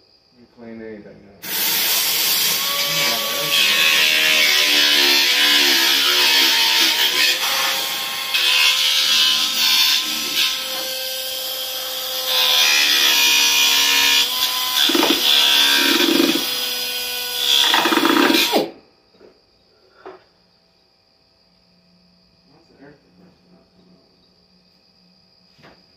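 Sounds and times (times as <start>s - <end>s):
cut-off tool whining: 12.5s - 18.8s.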